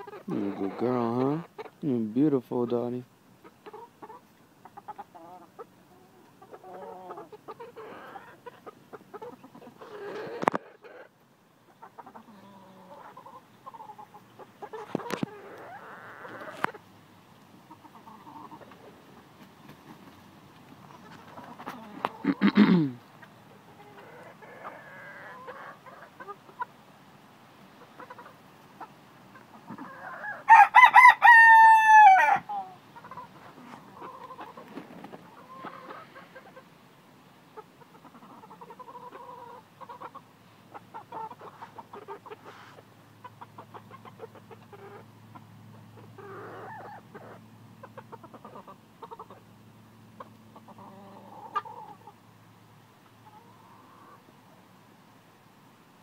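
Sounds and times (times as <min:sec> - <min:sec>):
chickens clucking: 0:00.0 - 0:54.8
rooster crowing: 0:29.9 - 0:32.6.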